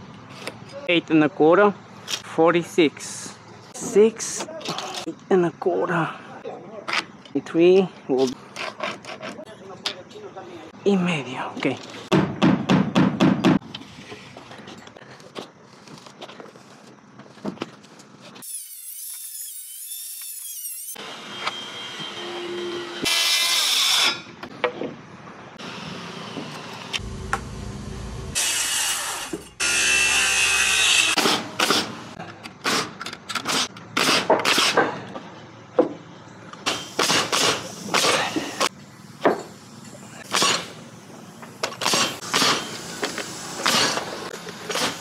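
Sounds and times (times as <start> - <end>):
power saw cutting wood: 18.4 - 24.2, 25.6 - 32.0, 41.6 - 45.0
nail gun firing: 31.2 - 32.0, 32.6 - 34.9, 36.6 - 38.3, 40.3 - 40.8, 41.6 - 45.0.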